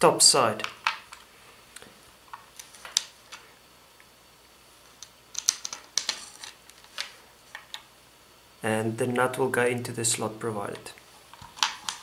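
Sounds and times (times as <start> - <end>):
small plastic parts clicking: 5.0 - 7.8.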